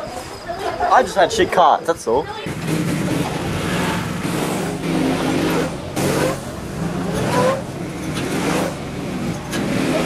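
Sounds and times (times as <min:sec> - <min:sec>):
go-kart engines revving past: 0:02.4 - 0:10.0.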